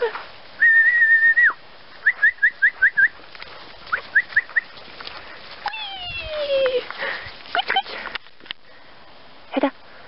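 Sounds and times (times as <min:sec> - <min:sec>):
person whistling rising notes: 0:00.6 - 0:03.1.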